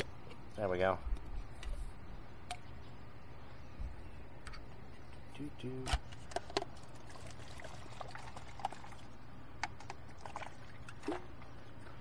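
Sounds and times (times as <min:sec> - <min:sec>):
steady low hum: 0:00.0 - 0:12.0
liquid pouring into plastic cup: 0:06.4 - 0:11.5.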